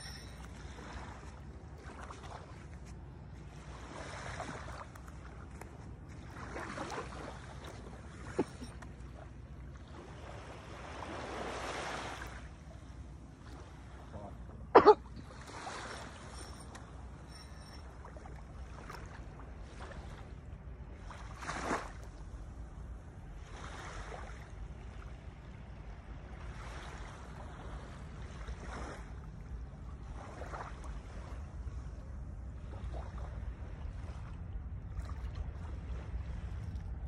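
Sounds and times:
small waves lapping on sand: 0.0s - 37.0s
wind rumble on microphone: 15.2s - 37.0s.

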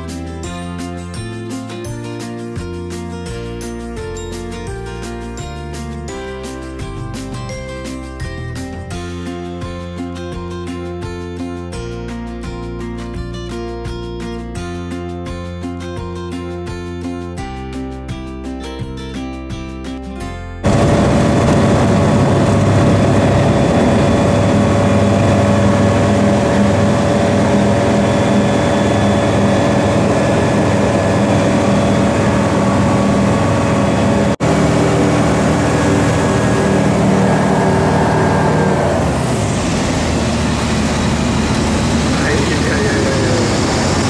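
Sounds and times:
light aircraft engine and propeller: 20.6s - 44.0s.

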